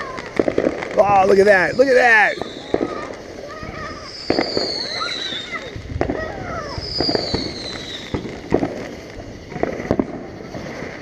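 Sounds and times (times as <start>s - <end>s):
fireworks pops and bangs: 0.0s - 11.0s
firework whistle falling in pitch: 1.5s - 8.2s.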